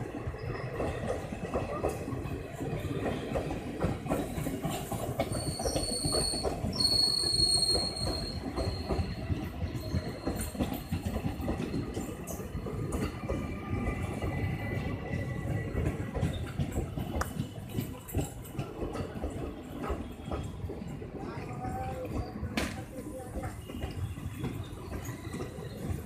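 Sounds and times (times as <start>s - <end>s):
train wheels clattering on rails: 0.0s - 26.0s.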